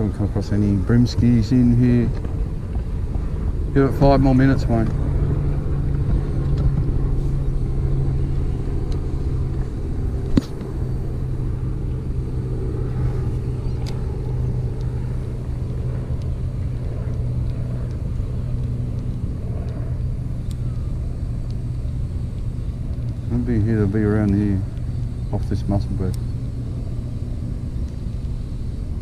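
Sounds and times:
boat motor humming: 0:00.0 - 0:29.0
sharp click: 0:10.3 - 0:10.7.

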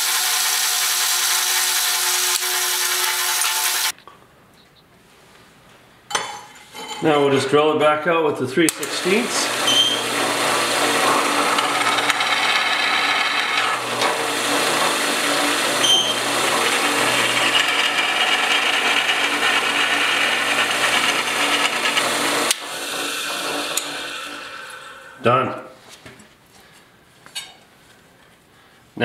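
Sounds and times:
drill bit grinding metal: 0:00.0 - 0:03.9, 0:08.7 - 0:25.2
drill press motor hum: 0:00.0 - 0:03.9, 0:08.7 - 0:25.2.

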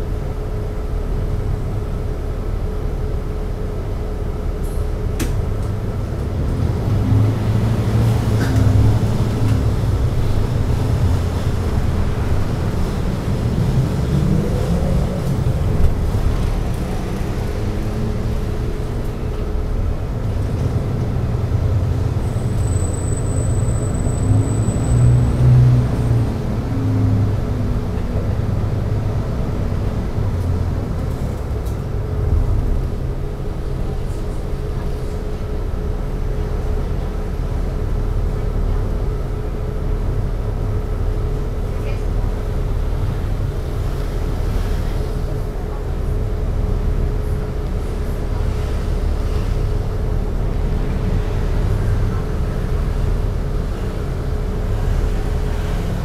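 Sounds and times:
bus engine low rumble: 0:00.0 - 0:56.0.

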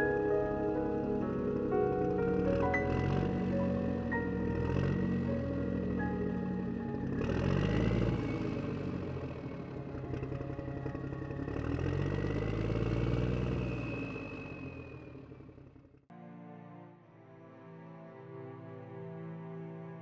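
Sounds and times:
road noise: 0:00.0 - 0:16.1
motorbike engine running: 0:02.5 - 0:16.0.

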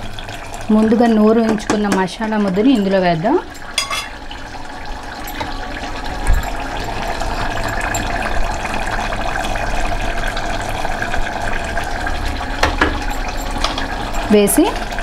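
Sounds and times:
curry bubbling in pot: 0:00.0 - 0:15.0.

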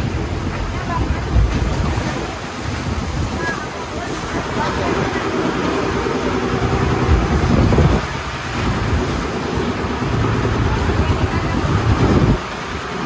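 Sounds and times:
boat engine running: 0:00.0 - 0:13.0
water rushing along hull: 0:00.0 - 0:13.0
wind buffeting microphone: 0:00.0 - 0:13.0.

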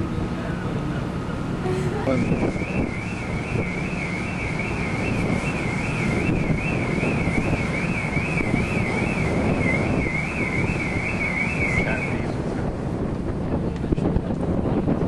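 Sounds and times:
low ferry rumble: 0:00.0 - 0:15.0
wind buffeting microphone: 0:00.0 - 0:15.0
high warbling tone: 0:02.1 - 0:12.4.

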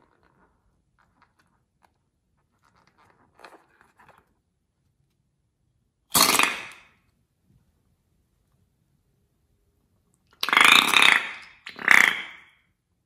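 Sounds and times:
balloon bursting: 0:06.1 - 0:07.0.

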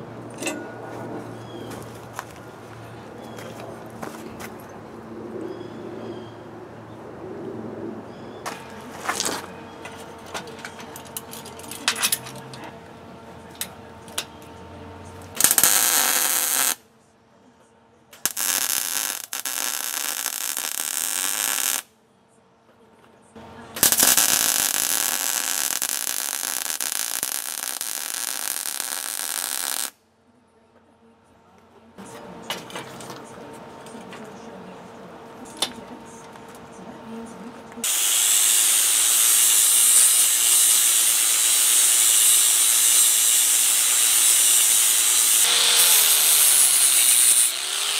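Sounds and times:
welding arc hiss: 0:15.4 - 0:16.8, 0:18.2 - 0:21.9, 0:23.8 - 0:29.9, 0:37.8 - 0:47.9.

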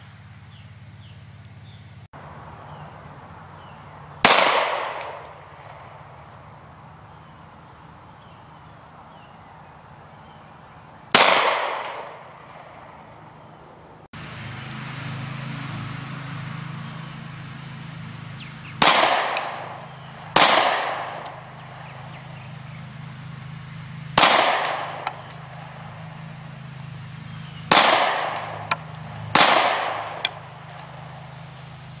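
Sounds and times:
handgun shots echoing: 0:04.3 - 0:05.8, 0:11.2 - 0:12.8, 0:27.7 - 0:30.4.

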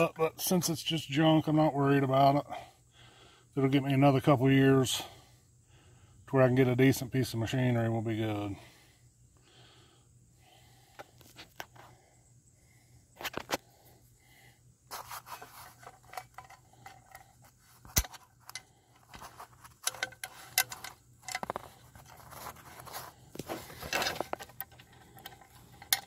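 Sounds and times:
hands handling metal parts: 0:14.9 - 0:26.0.

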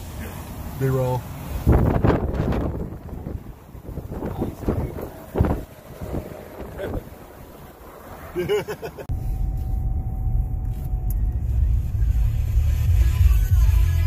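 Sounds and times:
car stereo music with deep bass: 0:09.1 - 0:14.0.

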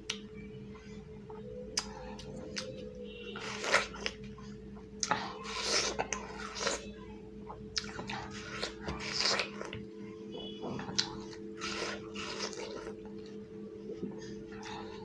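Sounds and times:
chewing watermelon wet crunching: 0:01.7 - 0:15.0.

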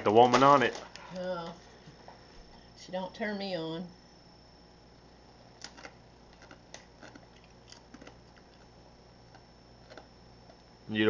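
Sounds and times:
tortilla chip crunching: 0:05.5 - 0:10.6.

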